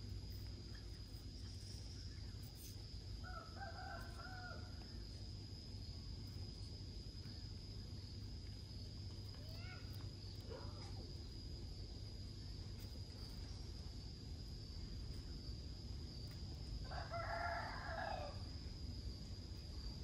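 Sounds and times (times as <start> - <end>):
high-pitched insect whine: 0.0 - 20.0
rooster crowing: 3.2 - 4.8, 16.8 - 18.5.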